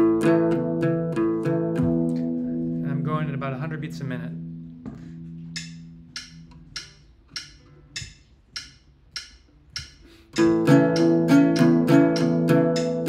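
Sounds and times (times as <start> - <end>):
metronome clicking: 5.4 - 13.0
acoustic guitar strumming chords: 10.4 - 13.0.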